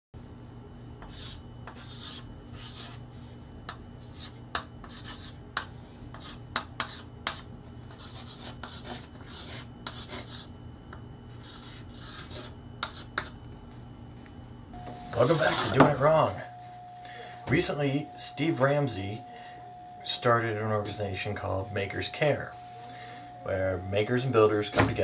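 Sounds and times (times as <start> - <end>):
faint steady hum: 0.2 - 25.0
chalk scratching on chalkboard: 1.0 - 3.0, 4.0 - 10.5, 11.4 - 13.3
chalk tapping on board: 3.7 - 9.0.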